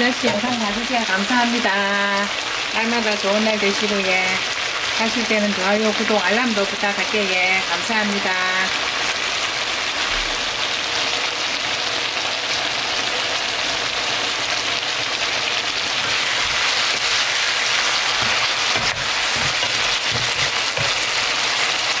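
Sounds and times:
chicken sizzling in frying pan: 0.0 - 22.0
spatula knocking against pan: 18.2 - 21.1.

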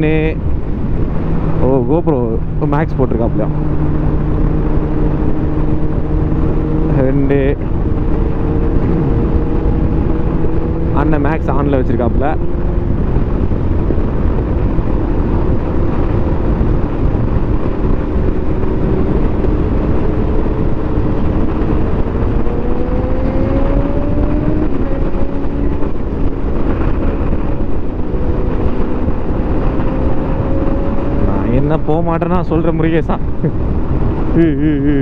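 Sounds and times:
wind rushing over microphone: 0.0 - 35.0
motorcycle engine running: 2.2 - 32.0.

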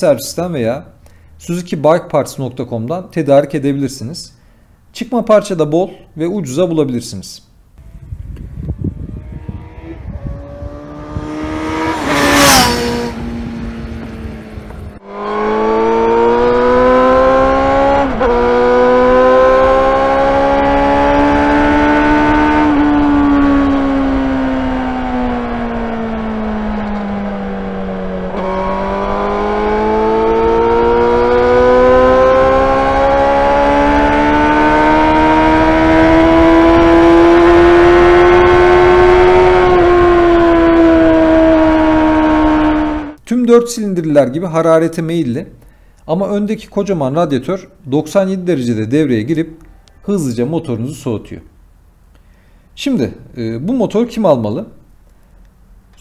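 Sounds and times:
loud rushing sound: 7.8 - 18.6
motorcycle engine revving high: 7.8 - 43.2.

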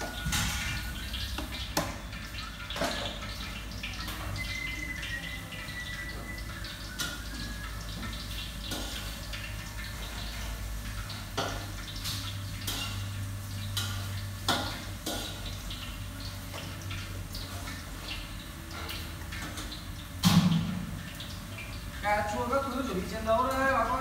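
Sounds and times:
clinks of bowls and utensils: 0.0 - 13.1.

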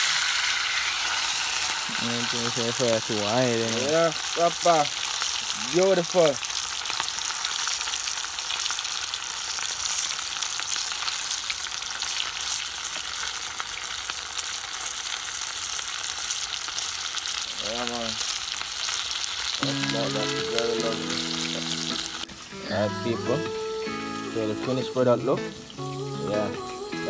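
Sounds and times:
food sizzling in hot oil: 0.0 - 27.0.

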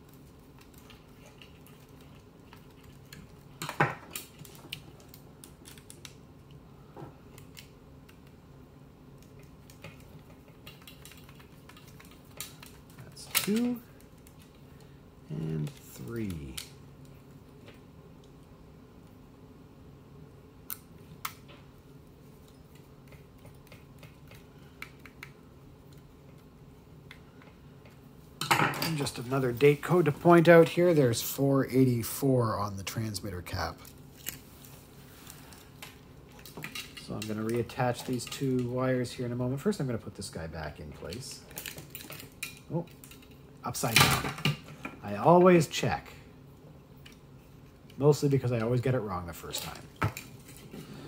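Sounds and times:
low steady hum: 0.0 - 51.0.

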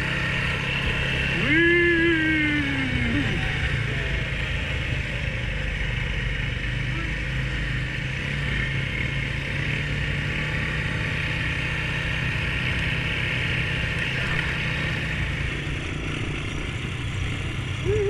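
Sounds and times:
atv engine running: 0.0 - 18.0.

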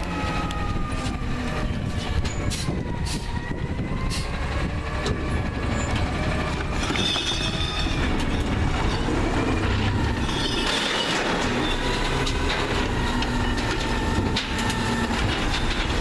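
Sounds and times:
clanks and rattles of arm and cart: 4.1 - 16.0.

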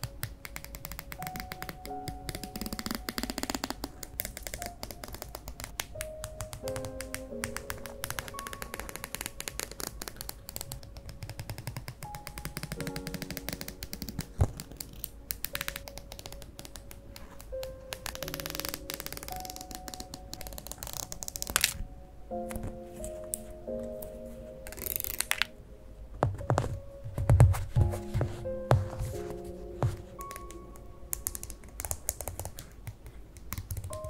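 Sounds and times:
soft background music: 0.0 - 34.0.

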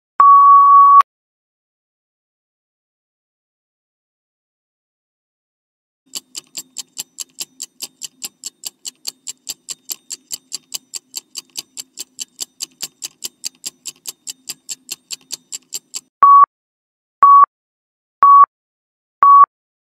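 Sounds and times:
timer ticking: 6.1 - 16.1.

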